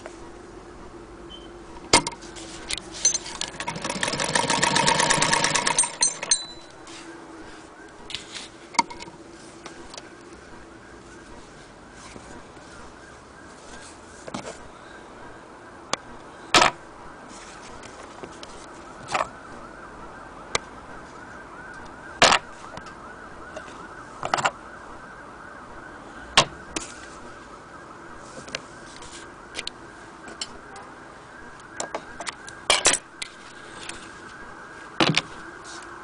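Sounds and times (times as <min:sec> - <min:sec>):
handling clicks and knocks: 0:01.8 - 0:06.8, 0:08.1 - 0:10.4, 0:17.8 - 0:19.4, 0:23.6 - 0:24.6, 0:35.0 - 0:35.3
faint wavering tone: 0:05.8 - 0:07.7.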